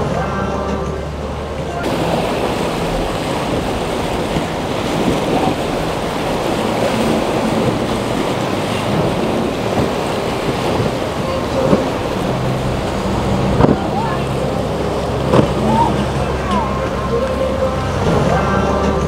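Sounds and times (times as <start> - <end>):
faint boat engines: 0.0 - 19.0
waves: 0.0 - 19.0
wind noise on microphone: 0.0 - 19.0.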